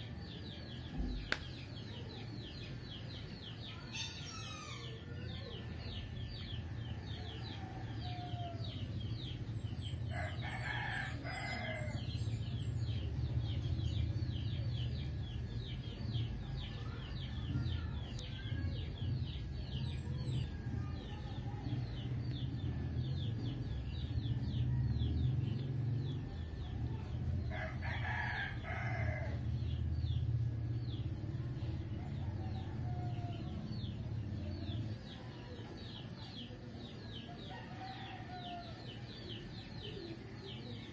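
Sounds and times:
rooster crowing: 37.5s - 38.8s.

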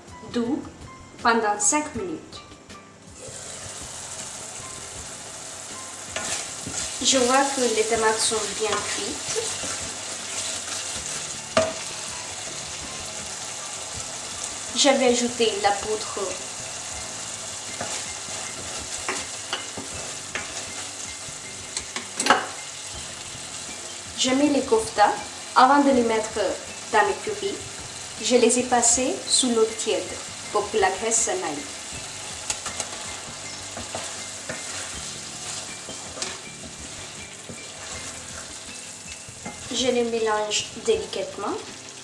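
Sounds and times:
sauce sizzling: 3.0s - 42.0s
wooden spatula scraping pan: 6.1s - 11.9s, 32.6s - 39.7s
wooden spatula knocking pan: 11.0s - 12.0s.

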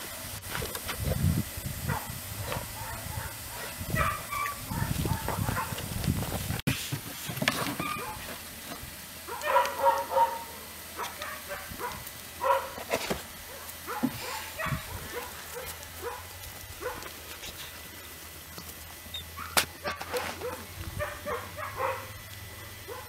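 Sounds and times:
puppies yipping and barking: 1.9s - 5.8s, 7.6s - 8.4s, 9.3s - 12.8s, 13.4s - 17.1s, 19.0s - 23.0s.

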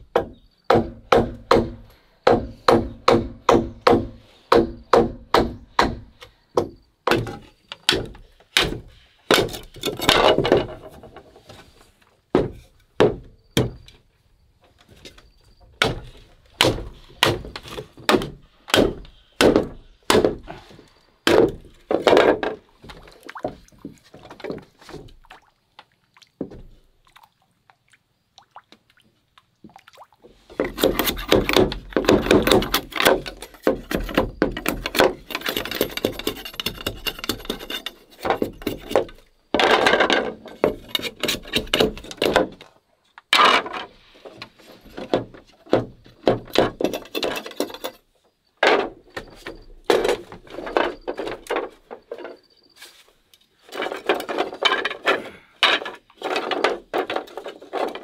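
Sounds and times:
machete knocking into bamboo: 7.0s - 10.7s, 15.8s - 20.5s, 21.2s - 22.4s
bamboo crackling and splintering: 30.2s - 52.3s, 52.9s - 58.0s.

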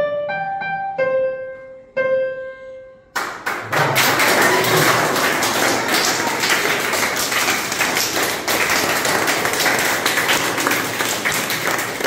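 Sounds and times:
group applauding: 3.2s - 12.0s.

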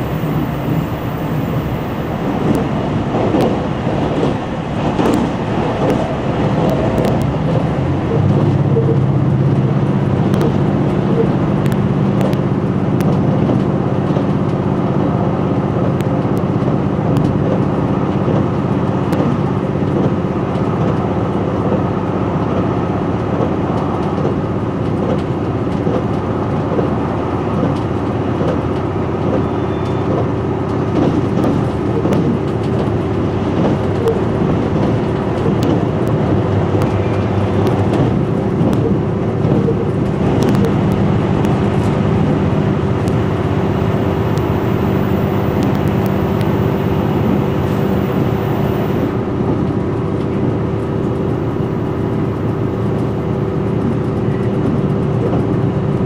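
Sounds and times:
train engine and wheels on rail: 0.0s - 56.0s
constant low hum: 24.5s - 56.0s.

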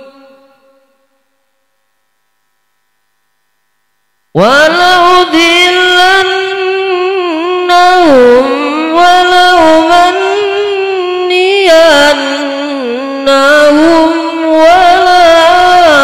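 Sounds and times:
person reciting melodically: 0.0s - 0.8s, 4.4s - 16.0s.

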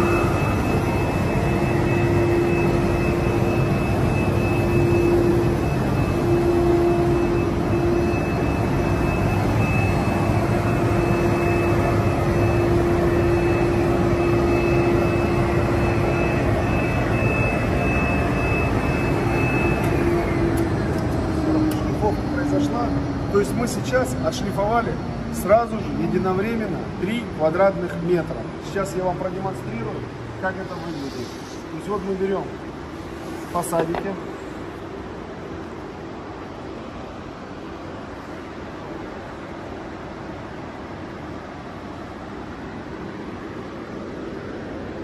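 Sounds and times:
high whine: 0.0s - 45.0s.

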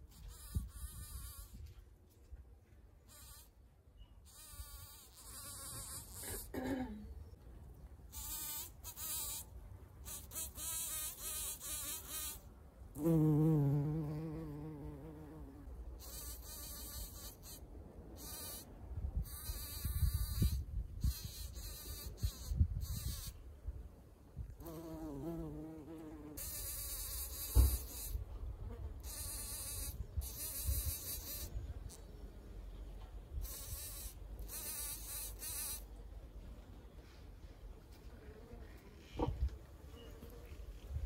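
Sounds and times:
bumblebee buzzing: 4.3s - 6.4s, 8.1s - 9.4s, 10.0s - 12.4s, 13.0s - 17.6s, 24.6s - 31.6s.

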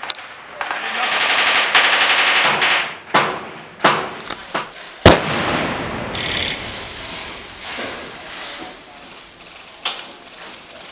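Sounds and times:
airsoft guns firing: 0.6s - 6.7s.

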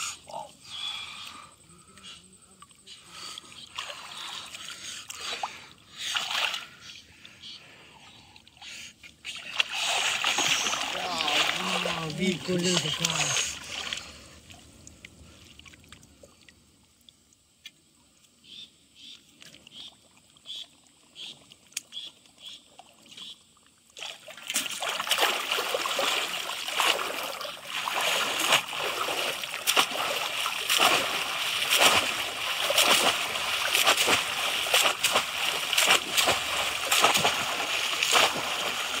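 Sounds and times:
faint water splashes and drips: 0.0s - 18.5s, 19.2s - 39.0s
people wading and splashing: 9.3s - 16.0s, 24.0s - 39.0s.

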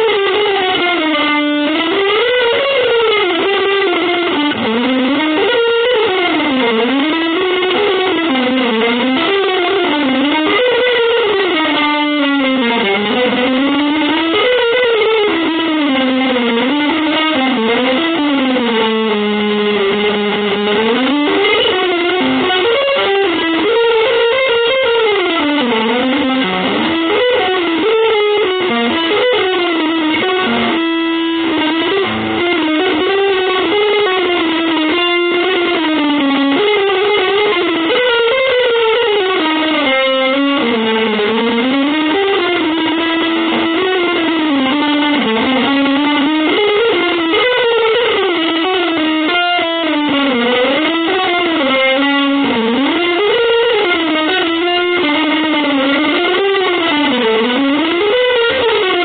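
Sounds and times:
distorted electric guitar: 0.0s - 59.0s.

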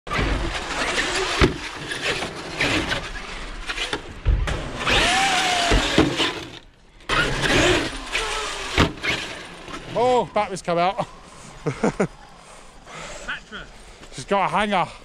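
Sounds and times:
rc truck motor whine: 0.1s - 10.3s.

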